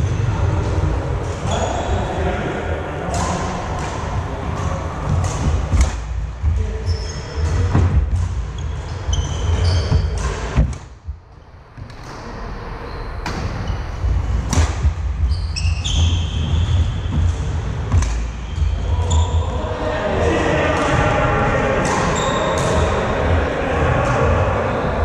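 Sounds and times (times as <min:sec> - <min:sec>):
racket striking shuttlecock: 0:03.1 - 0:06.0, 0:14.4 - 0:14.9, 0:16.8 - 0:18.3
shoes squeaking on floor: 0:06.6 - 0:10.7, 0:14.8 - 0:19.5, 0:22.1 - 0:22.6.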